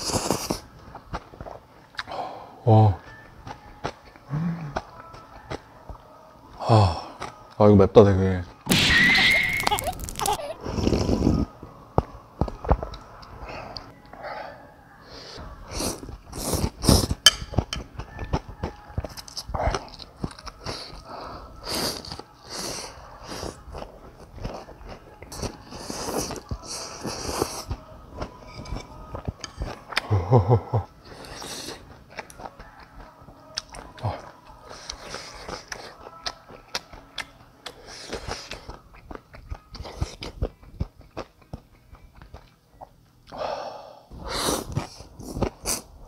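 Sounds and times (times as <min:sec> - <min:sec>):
slurping noodles: 0:00.0 - 0:00.6, 0:10.6 - 0:11.5, 0:44.1 - 0:45.9
wet chewing: 0:00.0 - 0:02.2, 0:31.0 - 0:43.0
person humming briefly: 0:04.3 - 0:04.8.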